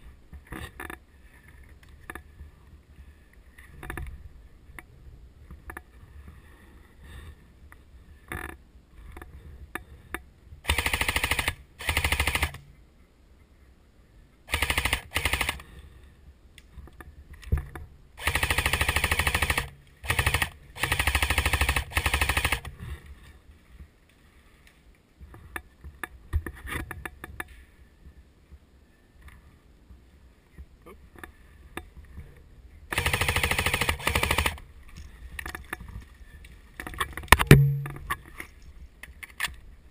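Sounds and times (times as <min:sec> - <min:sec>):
faint clicks and knocks: 0:03.3 - 0:06.4, 0:16.6 - 0:17.9, 0:23.8 - 0:27.7, 0:34.8 - 0:39.6
airsoft rifle full-auto bursts: 0:10.6 - 0:12.6, 0:14.5 - 0:15.6, 0:18.2 - 0:22.7, 0:32.9 - 0:34.6.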